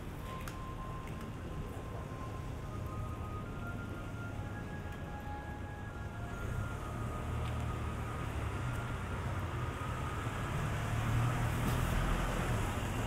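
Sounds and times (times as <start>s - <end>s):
street traffic: 0.0s - 13.0s
truck engine droning: 0.0s - 13.0s.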